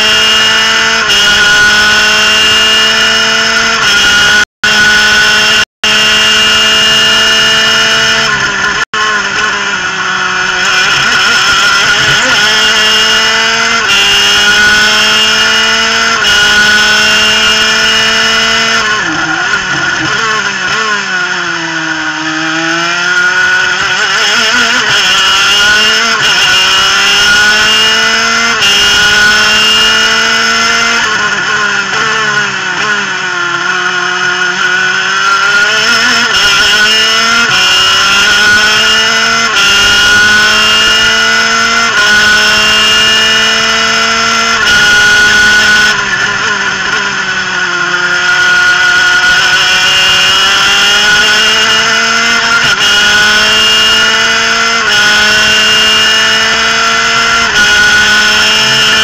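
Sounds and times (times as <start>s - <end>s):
two-stroke racing engine: 0.0s - 59.0s.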